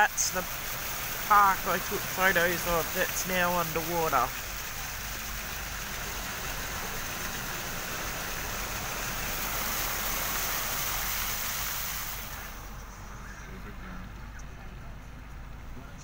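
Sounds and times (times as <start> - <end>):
tyres swishing through water: 0.0 - 14.0.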